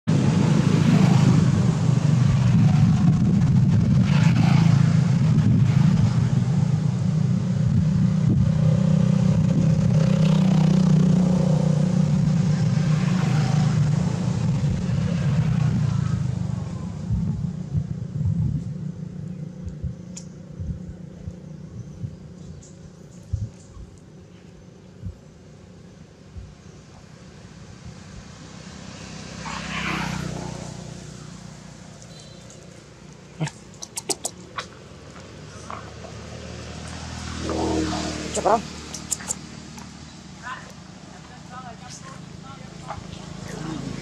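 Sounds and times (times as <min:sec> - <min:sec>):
vehicle engine running: 0:00.1 - 0:28.8, 0:30.0 - 0:44.0.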